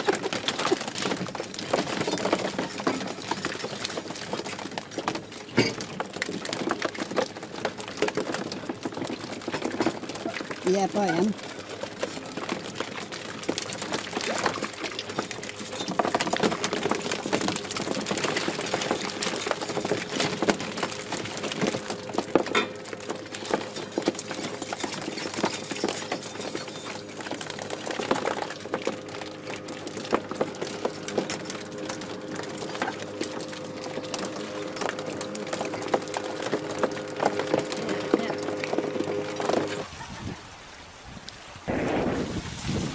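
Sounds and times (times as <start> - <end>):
fishing gear clicking and rattling: 0.0 - 39.8
engine hum: 0.0 - 40.0.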